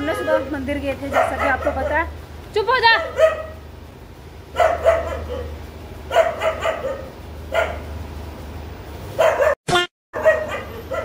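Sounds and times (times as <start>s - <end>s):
dog barking: 1.1s - 2.1s, 2.9s - 3.6s, 4.5s - 7.9s, 9.2s - 9.6s, 10.2s - 11.0s.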